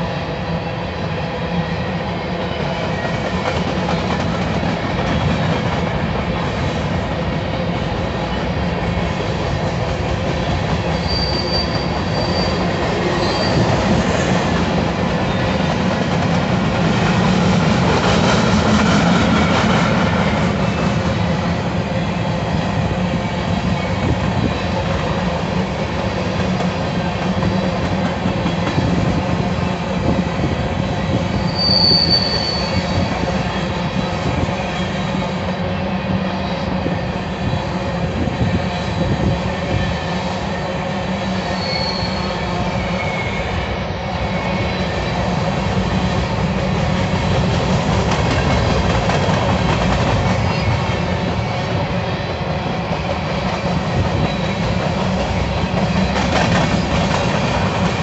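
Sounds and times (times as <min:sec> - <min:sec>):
train wheels rumbling on rails: 0:00.0 - 0:58.0
high-pitched wheel squeal: 0:11.0 - 0:13.7, 0:31.4 - 0:33.1, 0:41.4 - 0:43.7.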